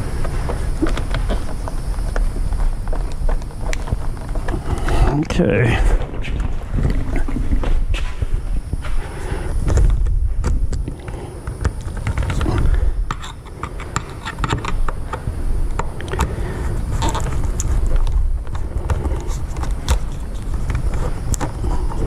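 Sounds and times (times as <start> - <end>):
knocks and handling rumble: 0.0 - 22.0
screwdriver clicking and scraping: 12.0 - 15.2.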